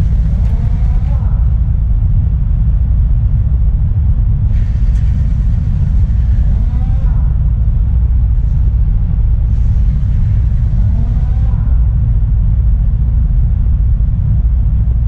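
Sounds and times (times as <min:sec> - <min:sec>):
faint voice: 0:00.0 - 0:01.8, 0:06.2 - 0:07.9, 0:09.7 - 0:12.3
truck engine rumble: 0:00.0 - 0:15.0.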